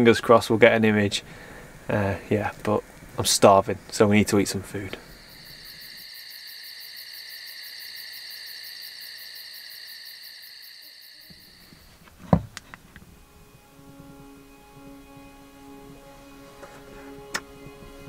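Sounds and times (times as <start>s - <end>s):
high-pitched insect chirring: 5.1s - 11.8s.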